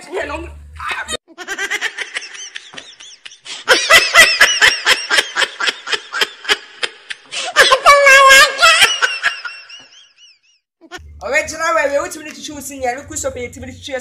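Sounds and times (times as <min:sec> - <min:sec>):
high drawn-out laughing voice: 0:01.0 - 0:10.2
loud laughter: 0:01.2 - 0:10.3.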